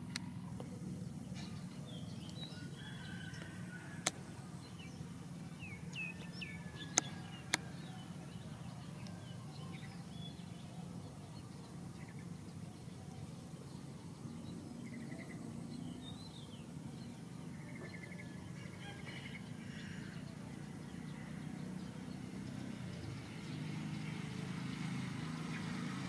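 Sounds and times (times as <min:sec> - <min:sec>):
small birds chirping: 0:00.0 - 0:26.0
sharp clicks: 0:06.9 - 0:07.6.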